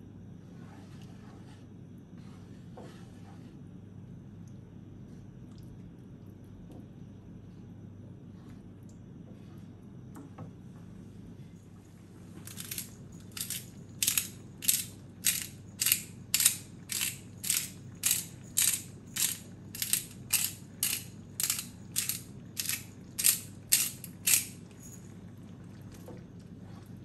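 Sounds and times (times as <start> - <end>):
pepper mill grinding: 12.4 - 25.0.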